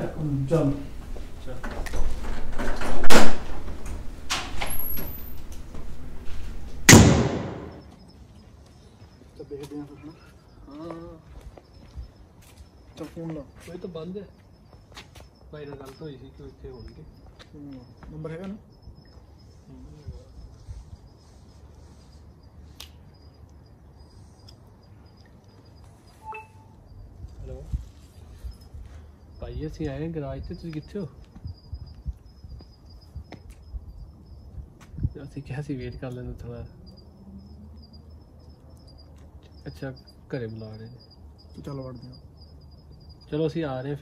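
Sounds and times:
insects chirping: 0.0s - 44.0s
door slamming shut: 1.6s - 5.2s, 6.9s - 7.9s
door opening clunk: 1.6s - 5.6s
brief beep-like tone: 26.2s - 26.8s.

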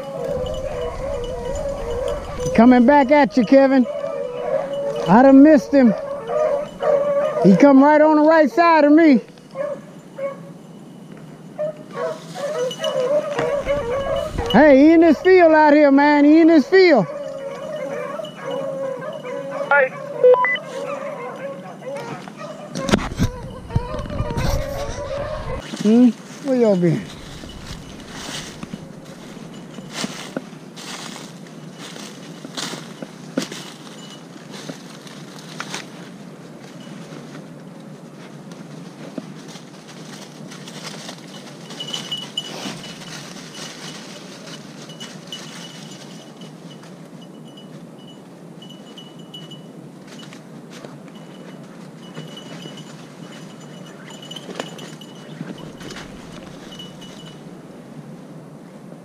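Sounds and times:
footsteps crunching through leaves: 0.0s - 3.4s, 12.0s - 15.9s, 23.2s - 46.7s, 54.2s - 57.5s
faint high ringing tone: 9.8s - 11.6s, 20.2s - 20.7s, 26.7s - 34.7s, 41.2s - 50.4s, 51.1s - 57.8s.

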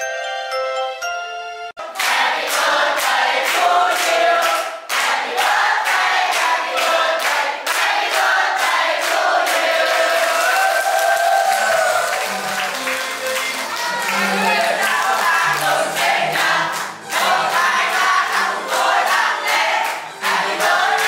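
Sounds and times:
music-box tune chiming: 0.0s - 1.7s
young voices singing together: 1.8s - 10.8s, 13.6s - 21.0s
clapping in time: 2.0s - 17.6s.

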